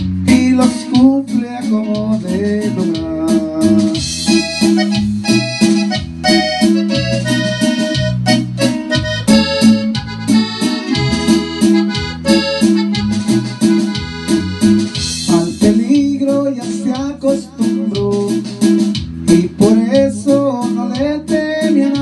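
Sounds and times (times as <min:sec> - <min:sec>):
accordion-voice keyboard melody: 0:00.0 - 0:22.0
bouncing bass line: 0:00.0 - 0:22.0
steady drum beat: 0:00.0 - 0:22.0.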